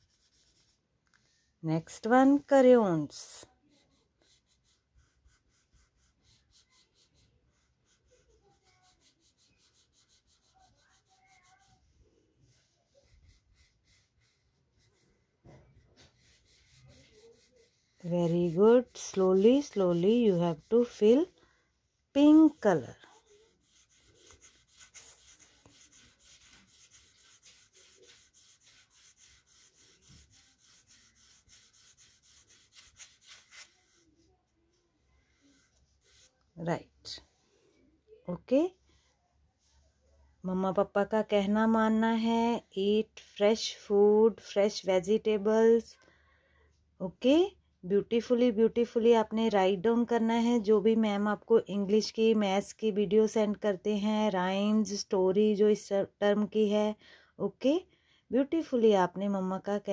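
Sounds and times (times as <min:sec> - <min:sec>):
crayon scratching on paper: 0:00.0 - 0:00.8, 0:01.9 - 0:21.4, 0:22.2 - 0:34.4, 0:35.2 - 0:37.2.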